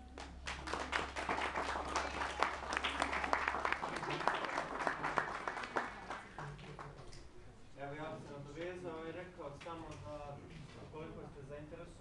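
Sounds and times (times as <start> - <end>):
audience applauding: 0.2 - 7.0.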